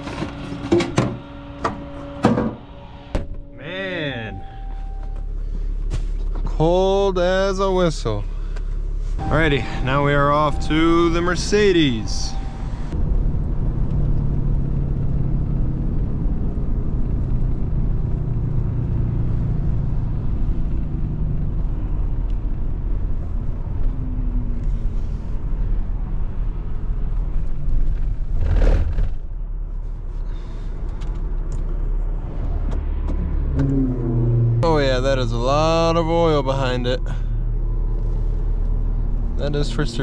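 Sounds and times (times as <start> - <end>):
road rumble: 0.0 - 40.0
truck engine running: 0.0 - 40.0.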